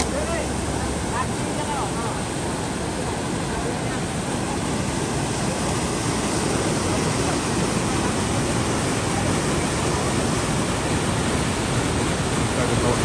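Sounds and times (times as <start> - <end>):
river water rushing through weir: 0.0 - 13.0.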